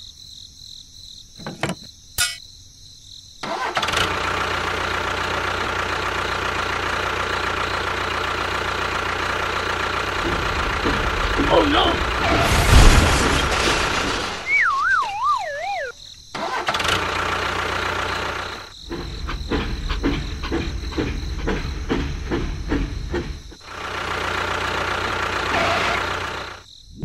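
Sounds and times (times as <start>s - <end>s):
engine running: 3.4s - 14.4s, 15.7s - 26.6s
wavering falling tone: 14.4s - 16.0s.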